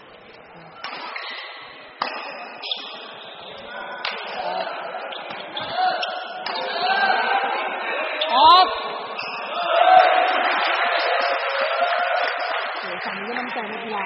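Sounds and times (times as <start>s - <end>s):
murmur of voices: 0.0s - 14.0s
rackets striking shuttlecock: 0.8s - 1.4s, 2.0s - 3.0s, 4.0s - 4.4s.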